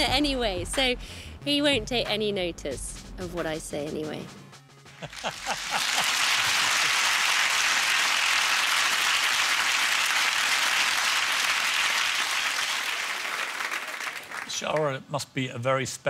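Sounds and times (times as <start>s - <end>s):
audience applauding: 5.0s - 15.0s.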